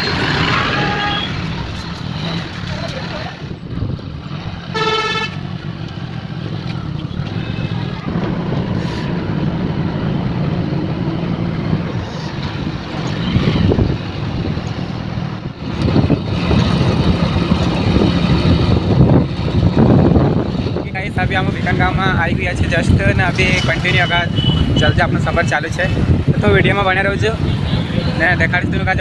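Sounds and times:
motorcycle engine hum: 0:00.0 - 0:29.0
road and wind noise: 0:00.0 - 0:29.0
vehicle horn toot: 0:00.5 - 0:01.5, 0:04.7 - 0:05.4, 0:24.0 - 0:24.8.

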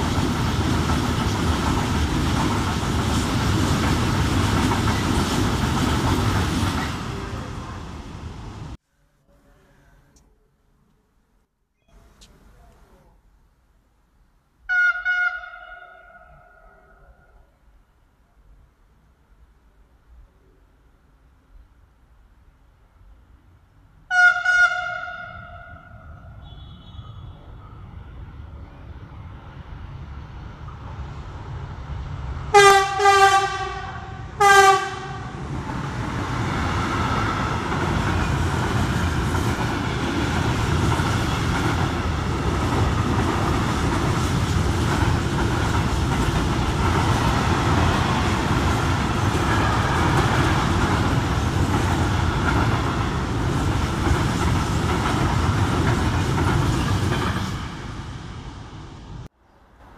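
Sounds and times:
freight train rumble and wheel clatter: 0:00.0 - 0:08.8, 0:25.1 - 0:59.9
train horn blasts: 0:14.7 - 0:16.8, 0:24.1 - 0:27.6, 0:32.5 - 0:35.4.

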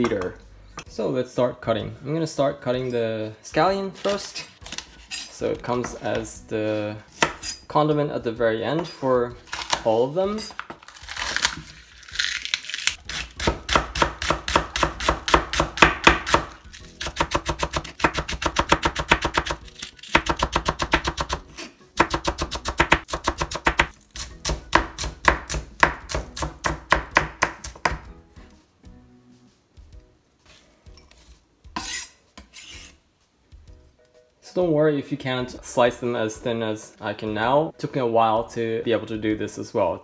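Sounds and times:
knife slicing on wooden board: 0:31.8 - 0:33.0.

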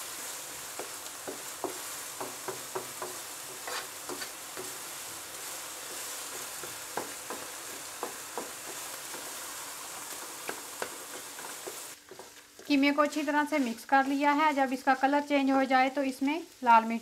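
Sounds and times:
meat and onion sizzling in a pan: 0:00.0 - 0:17.0
wooden spatula tapping and scraping pan: 0:00.6 - 0:05.0, 0:05.7 - 0:13.8.

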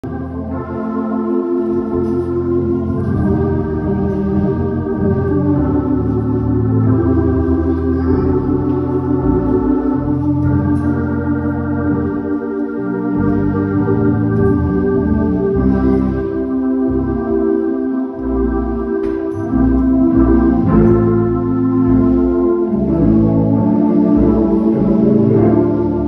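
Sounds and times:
church organ playing chords: 0:00.0 - 0:26.0.

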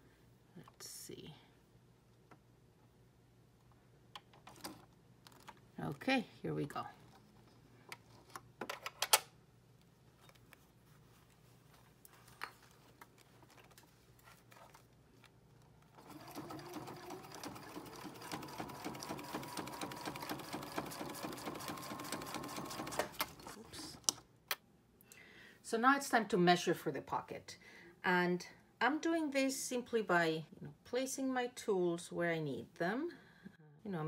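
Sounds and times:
sewing machine stitching fast: 0:16.0 - 0:23.6.

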